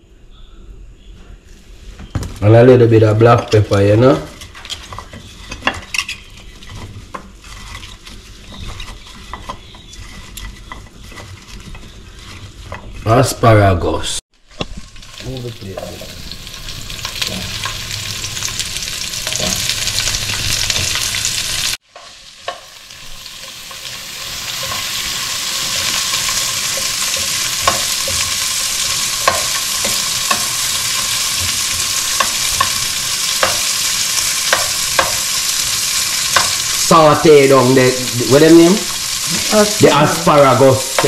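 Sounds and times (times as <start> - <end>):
vegetables sizzling in frying pan: 14.4 - 41.0.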